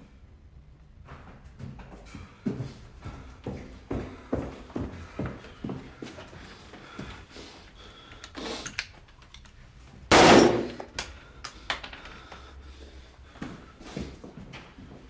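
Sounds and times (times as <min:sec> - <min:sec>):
single gunshot cracks: 0:10.1 - 0:10.9.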